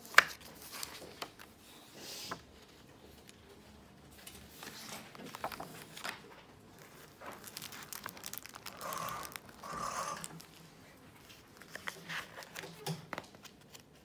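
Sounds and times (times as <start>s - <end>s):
sketchbook pages rustling: 0.0s - 14.0s.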